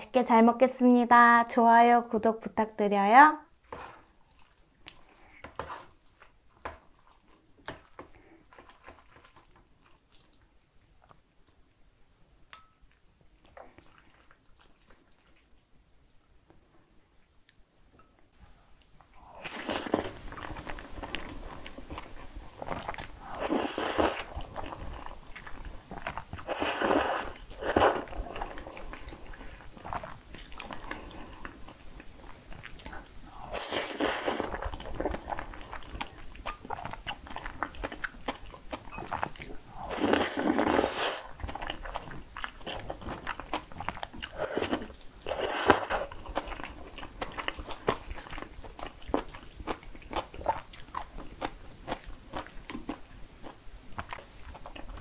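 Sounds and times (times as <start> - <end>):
wet chewing: 3.9 - 11.2, 18.8 - 55.0
slurping noodles: 22.6 - 25.1, 26.0 - 31.5, 33.3 - 35.6, 39.7 - 41.6.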